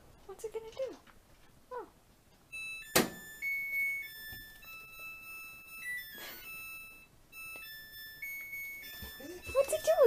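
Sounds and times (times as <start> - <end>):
washing machine beep melody: 2.5 - 10.0.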